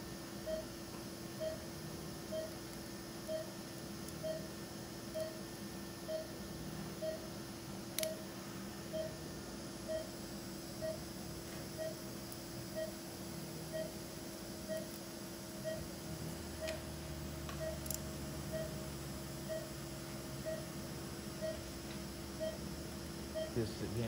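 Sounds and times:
steady hum: 0.0 - 24.0
patient monitor beeping: 0.4 - 0.7, 1.4 - 1.7, 2.3 - 2.6, 3.2 - 3.6, 4.2 - 4.5, 5.1 - 5.4, 6.0 - 6.4, 7.0 - 7.3, 8.0 - 8.3, 8.9 - 9.2, 9.8 - 10.2, 10.8 - 11.1, 11.8 - 12.1, 12.7 - 13.0, 13.7 - 14.0, 14.6 - 14.9, 15.6 - 15.9, 17.6 - 18.8, 19.4 - 19.8, 20.4 - 20.8, 21.4 - 22.7, 23.3 - 24.0.

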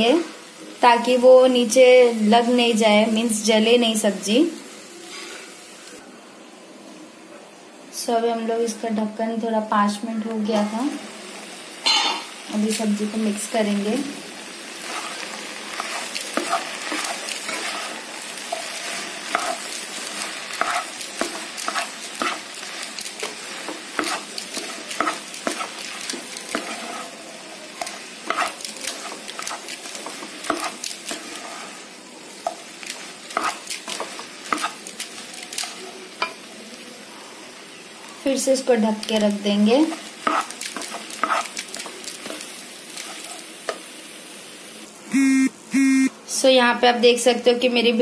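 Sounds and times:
vegetables sizzling in a pan: 0.0 - 48.0
spatula scraping a pan: 14.8 - 27.2, 27.8 - 36.4, 39.8 - 43.5.

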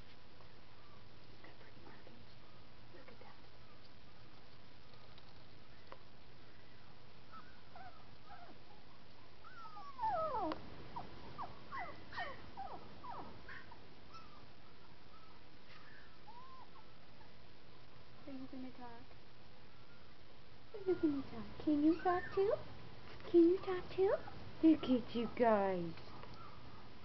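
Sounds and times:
puppies whining: 7.3 - 17.4, 20.7 - 22.7, 26.0 - 26.9.

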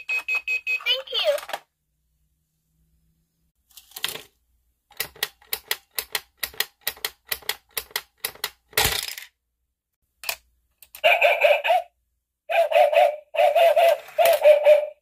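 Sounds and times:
toy mechanism clicking: 4.9 - 9.3, 13.7 - 14.6.

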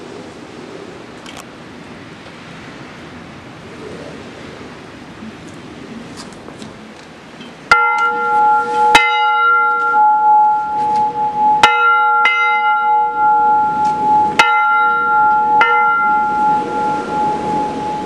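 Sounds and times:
rain: 0.0 - 18.0
wind: 0.0 - 18.0
bell ringing: 7.7 - 18.0.

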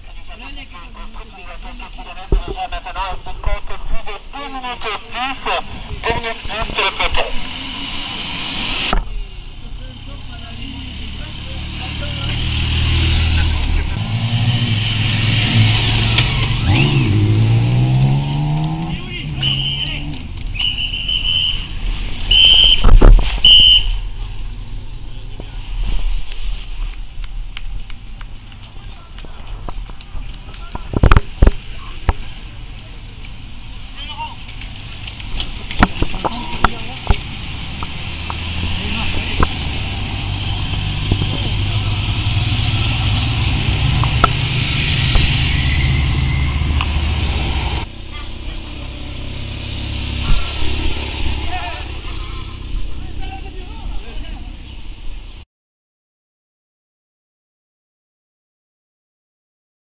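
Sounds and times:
cars driving slowly past: 0.0 - 55.4
short high whistle blasts: 20.6 - 21.7, 22.3 - 24.0
loud low rumble: 38.2 - 54.1.

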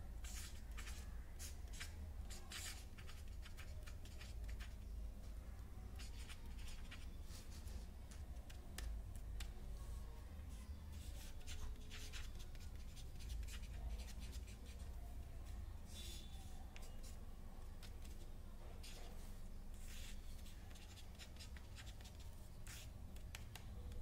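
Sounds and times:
pen scratching on paper: 0.2 - 4.8, 11.0 - 14.8, 18.8 - 23.4.

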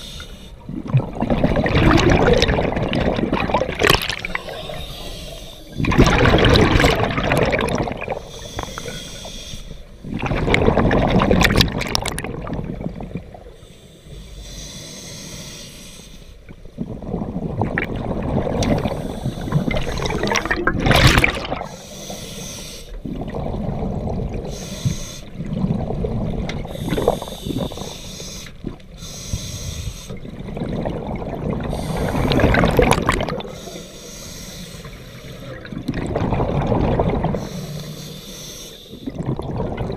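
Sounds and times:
diver exhaling gurgling bubbles: 0.6 - 9.0, 10.0 - 13.5, 16.8 - 22.1, 23.0 - 27.9, 30.1 - 33.8, 35.2 - 38.2, 38.9 - 39.9
regulator hissing and bubbling: 17.0 - 30.7, 31.4 - 39.9.

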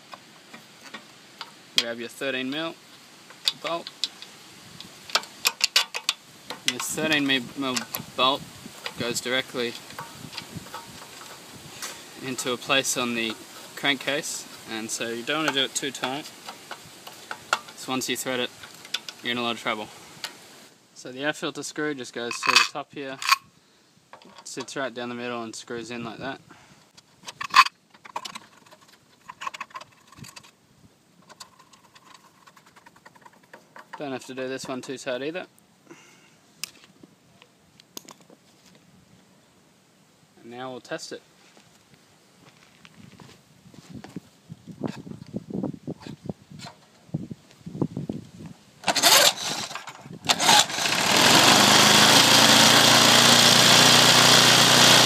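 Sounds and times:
air filter housing clicking and rattling: 3.3 - 19.3, 22.2 - 23.4, 24.1 - 24.8, 26.9 - 30.6, 31.2 - 35.0, 48.8 - 52.5
mower engine running: 48.8 - 55.0
recoil starter pulls: 48.8 - 55.0.

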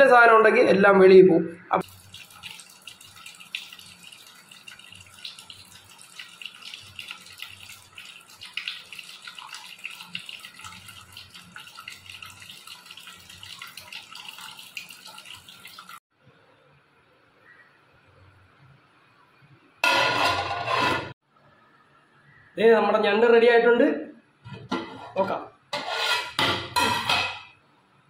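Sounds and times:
small drips crackling: 1.8 - 16.0
water running and splashing: 1.8 - 16.0.

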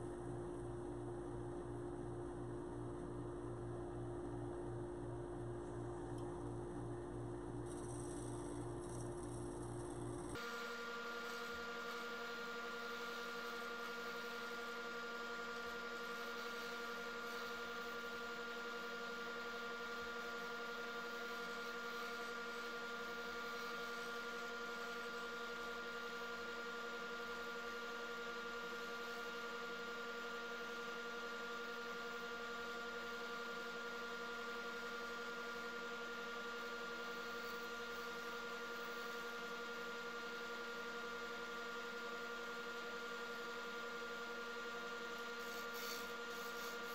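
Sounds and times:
turning tool hissing on wood: 45.4 - 46.9.

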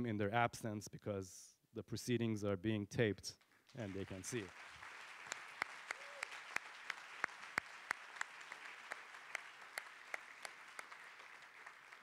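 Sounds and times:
audience clapping: 3.4 - 12.0.

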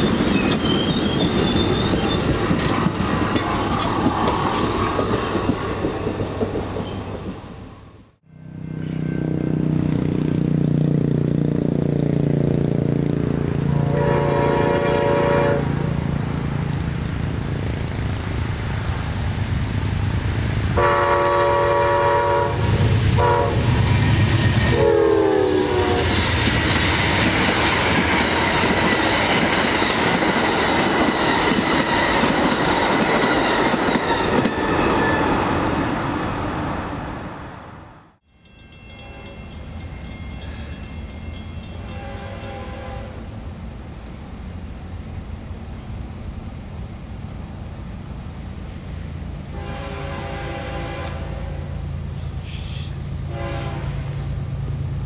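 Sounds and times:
train cars clattering: 0.0 - 7.6, 22.9 - 35.9, 38.4 - 43.0
diesel locomotive engine rumble: 0.0 - 55.0
train cars rolling past: 0.0 - 55.0
train horn blasts: 13.6 - 16.0, 20.7 - 23.8, 24.7 - 26.2, 38.9 - 39.6, 41.7 - 43.3, 49.5 - 51.7, 52.5 - 54.3.

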